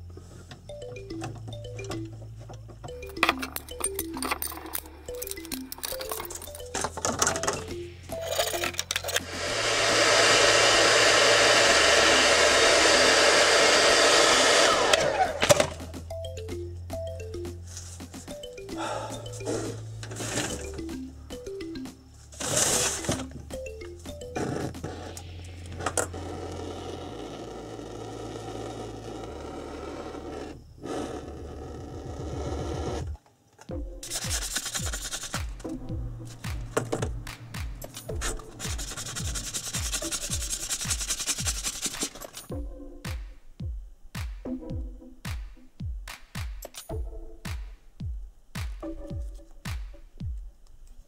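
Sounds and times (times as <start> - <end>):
motor winding down whine: 9.0 - 15.8
gas torch hissing: 9.2 - 15.3
hair dryer blowing: 9.2 - 15.7.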